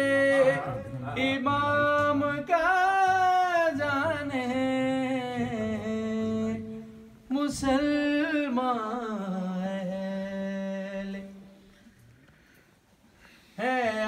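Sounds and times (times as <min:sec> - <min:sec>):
man singing into a microphone: 0:00.0 - 0:11.6, 0:13.6 - 0:14.0.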